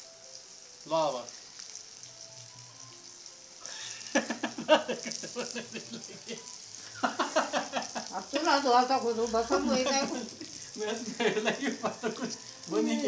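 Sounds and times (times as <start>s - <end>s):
onions and tomatoes sizzling: 0.0s - 13.0s
person talking: 8.2s - 13.0s.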